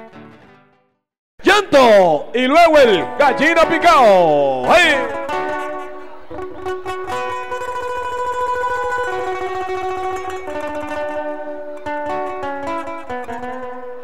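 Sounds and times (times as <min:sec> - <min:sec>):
guitar strumming: 0:00.0 - 0:00.8, 0:02.3 - 0:14.0
violin playing long notes: 0:04.6 - 0:12.2.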